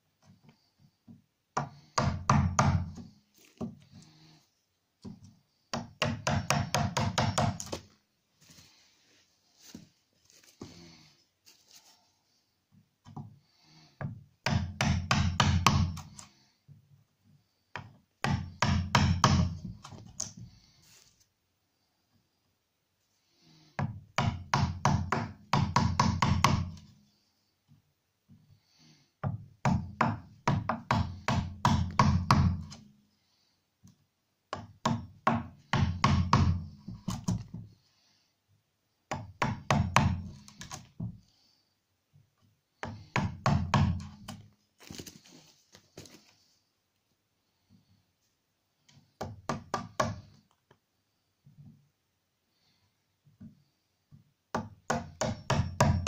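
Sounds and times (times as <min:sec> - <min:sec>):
hammer tapping wood chisel: 0:01.0 - 0:03.8, 0:05.0 - 0:07.8, 0:14.0 - 0:16.3, 0:17.8 - 0:20.5, 0:23.8 - 0:26.9, 0:29.2 - 0:32.8, 0:33.8 - 0:37.6, 0:39.1 - 0:41.1, 0:42.8 - 0:44.4, 0:48.9 - 0:50.4, 0:53.4 - 0:56.0.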